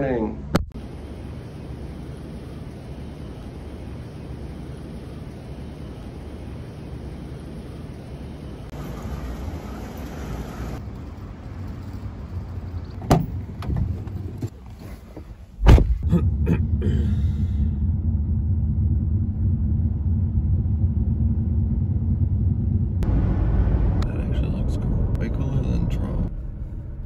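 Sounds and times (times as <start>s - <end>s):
car cabin road rumble: 10.4s - 27.0s.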